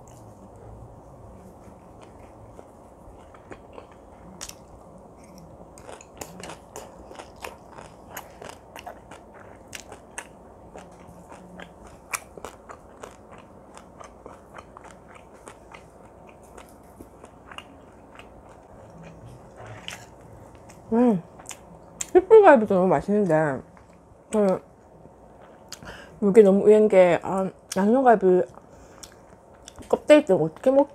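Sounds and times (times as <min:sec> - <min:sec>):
chewing crunchy crab shell: 0:02.0 - 0:22.1.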